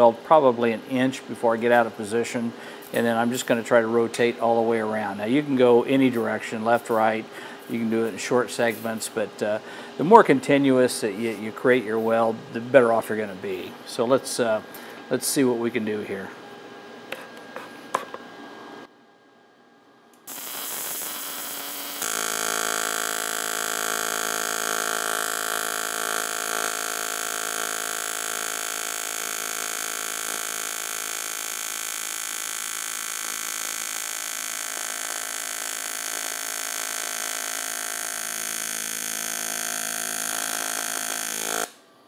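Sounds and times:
welding arc buzzing: 20.1 - 41.8.

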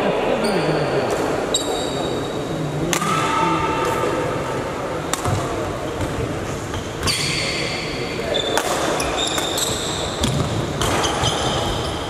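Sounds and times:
murmur of voices: 0.0 - 12.0
rackets hitting shuttlecock: 2.9 - 4.1, 5.0 - 6.3, 8.2 - 11.8.

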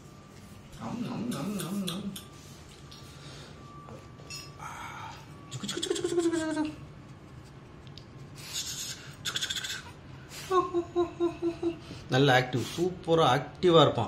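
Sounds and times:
puppy whining: 0.8 - 2.6, 5.5 - 6.9.

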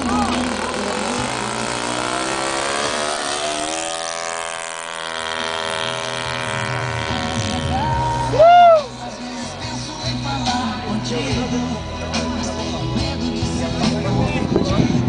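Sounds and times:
model airplane engine and propeller: 0.0 - 8.4
loud rising and falling tone: 0.0 - 9.2.

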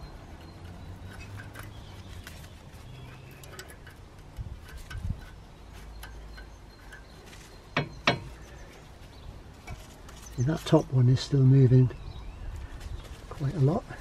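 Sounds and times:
rag rubbing on metal: 0.0 - 8.5
sharp knocks: 7.8 - 8.4.

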